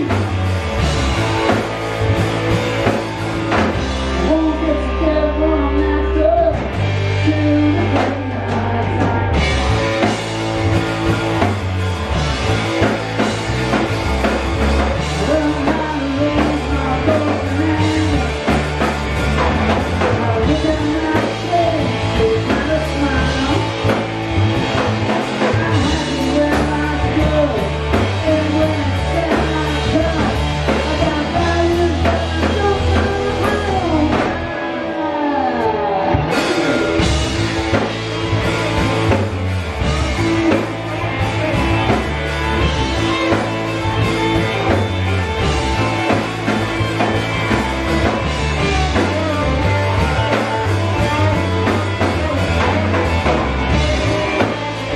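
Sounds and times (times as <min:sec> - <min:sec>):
bass guitar: 0:00.0 - 0:54.9
driving drum kit: 0:00.0 - 0:54.9
electric guitars: 0:00.0 - 0:54.9
man singing lead: 0:03.7 - 0:10.2, 0:14.6 - 0:54.9.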